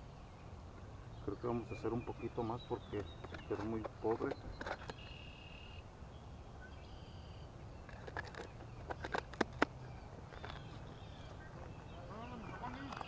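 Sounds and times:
low outdoor hum: 0:00.0 - 0:13.0
plastic cups clicking: 0:08.0 - 0:09.8.

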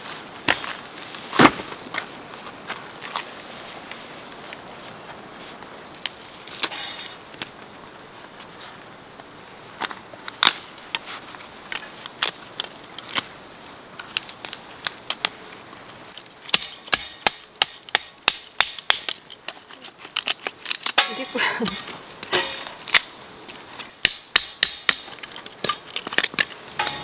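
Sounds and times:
baton striking knife into wood: 0:16.5 - 0:19.2, 0:24.0 - 0:27.0.

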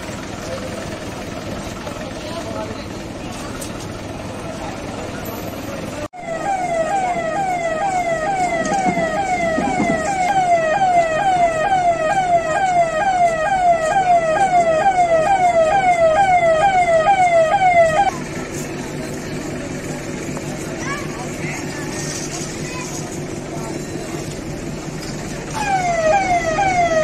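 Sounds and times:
electronic police siren: 0:06.2 - 0:18.2, 0:25.5 - 0:27.0.

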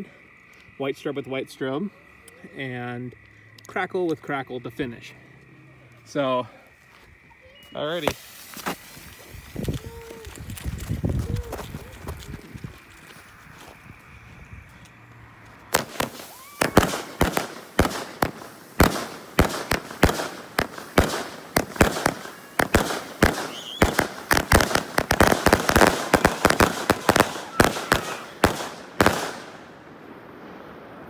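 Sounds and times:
fireworks popping and banging: 0:08.0 - 0:13.1, 0:15.7 - 0:29.7.

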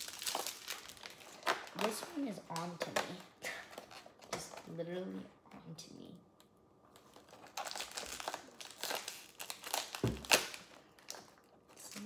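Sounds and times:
packaging crinkling: 0:00.0 - 0:04.8, 0:06.9 - 0:12.0
soft thump: 0:10.0 - 0:10.3.

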